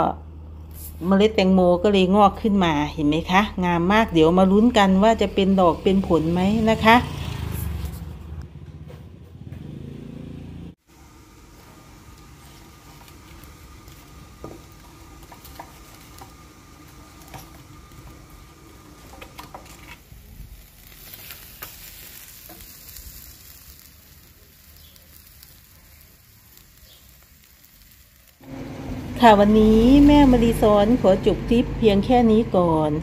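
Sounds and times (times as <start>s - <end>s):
fish sizzling on grill: 0.6s - 1.2s, 4.4s - 8.3s, 10.8s - 32.5s
wood fire crackling: 10.7s - 32.2s.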